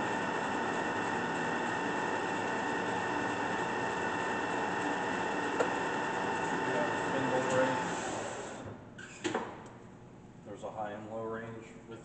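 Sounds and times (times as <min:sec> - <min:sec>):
lathe machine hum: 0:00.0 - 0:08.6.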